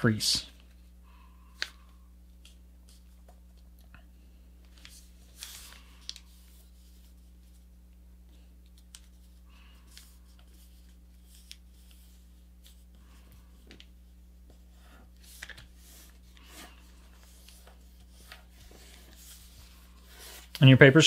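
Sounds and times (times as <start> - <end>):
steady low hum: 0.0 - 21.0
paper rustling and crinkling: 4.6 - 7.6.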